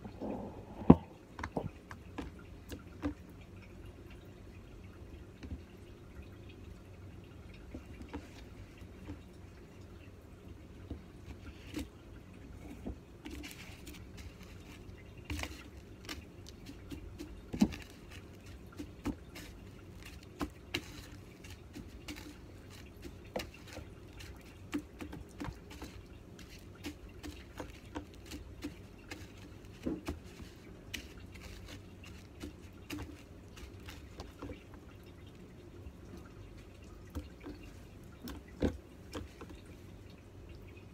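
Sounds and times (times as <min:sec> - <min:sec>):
crumbly rustles of breadcrumbs: 0:12.7 - 0:35.4.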